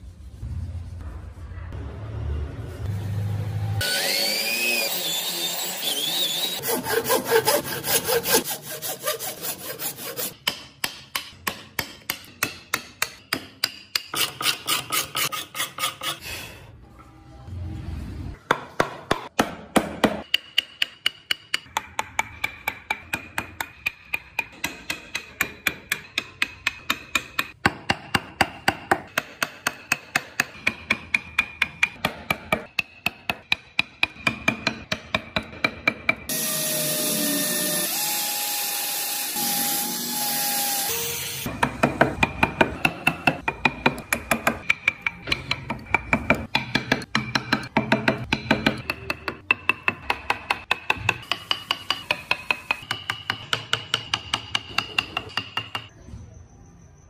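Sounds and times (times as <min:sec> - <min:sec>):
mallet tapping chisel into wood: 0:10.4 - 0:14.2, 0:18.5 - 0:36.2, 0:41.6 - 0:55.9.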